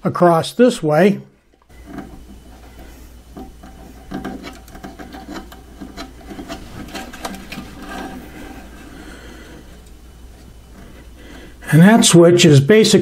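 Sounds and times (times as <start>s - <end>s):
steady low hum: 0.0s - 13.0s
wire rubbing and rustling: 1.7s - 12.2s.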